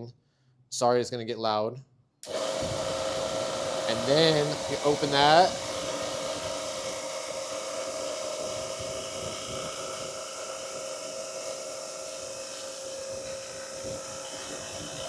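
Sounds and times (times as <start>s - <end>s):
refrigerant recovery machine humming: 2.2s - 15.0s
refrigerant hiss: 3.6s - 15.0s.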